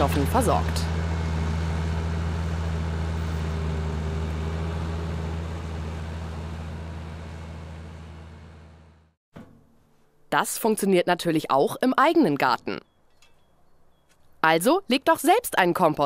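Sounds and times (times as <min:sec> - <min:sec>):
tractor engine running: 0:00.0 - 0:09.2.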